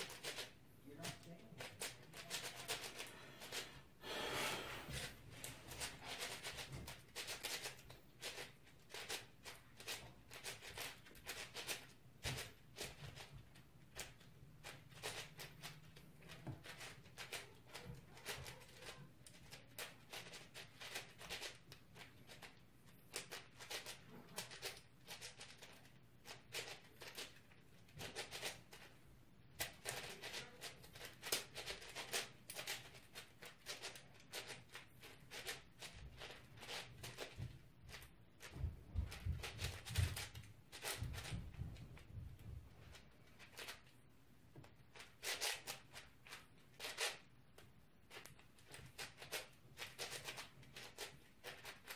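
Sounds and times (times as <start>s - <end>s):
speedcube clicking: 5.8s - 9.2s, 16.6s - 17.4s, 18.2s - 21.6s, 23.1s - 25.8s, 44.9s - 45.9s, 46.8s - 47.2s, 48.1s - 51.9s.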